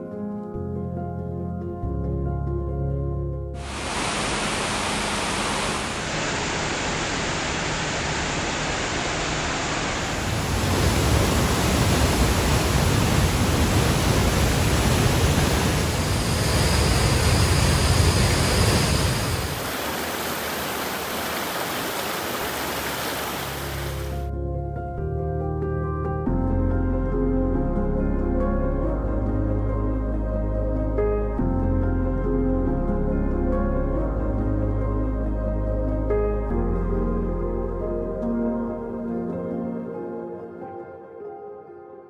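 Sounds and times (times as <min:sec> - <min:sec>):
rushing stream: 0:03.6 - 0:24.3
water pouring over spillway: 0:03.6 - 0:24.3.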